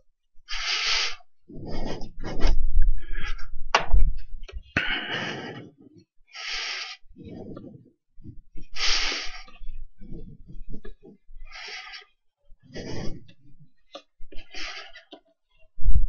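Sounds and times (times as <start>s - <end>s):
breaths into microphone: 0.5s - 3.6s, 4.8s - 13.6s.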